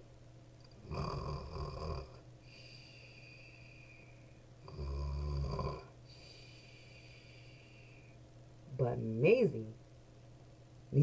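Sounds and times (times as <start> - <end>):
woman imitating snoring: 0.8 - 2.2, 4.6 - 5.9.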